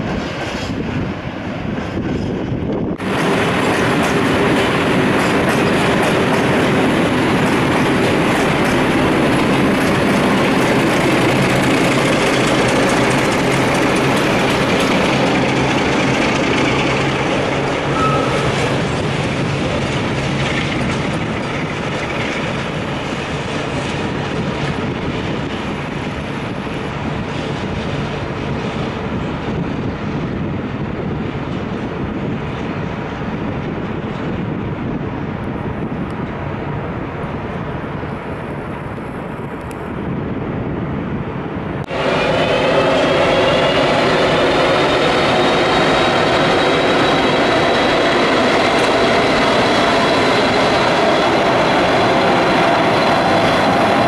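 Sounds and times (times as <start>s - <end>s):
freight train wheels clattering: 0.0s - 31.8s, 41.8s - 54.0s
wheel squeal: 17.8s - 18.8s.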